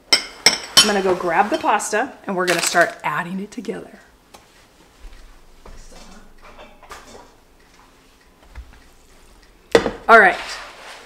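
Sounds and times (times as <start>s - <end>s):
kitchen clicks and knocks: 5.8s - 7.4s, 9.7s - 10.1s.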